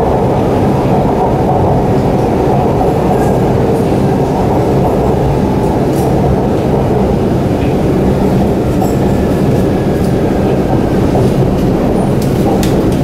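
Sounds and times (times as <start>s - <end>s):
train wheels on rails: 0.0s - 13.0s.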